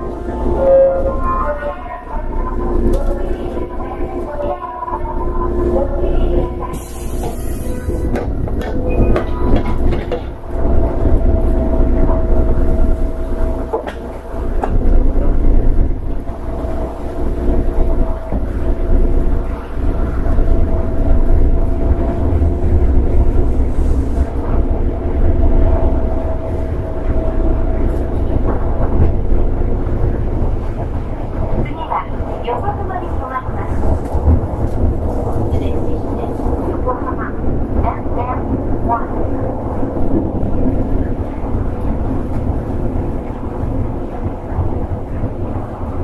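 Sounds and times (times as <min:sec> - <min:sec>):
train wheels rumbling on rail: 0:00.0 - 0:46.0
train motor whine: 0:05.0 - 0:31.8.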